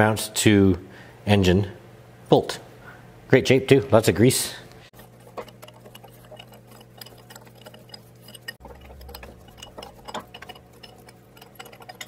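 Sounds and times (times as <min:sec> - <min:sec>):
steady low hum: 0:00.8 - 0:12.0
spanner clicking on bolts: 0:05.0 - 0:12.0.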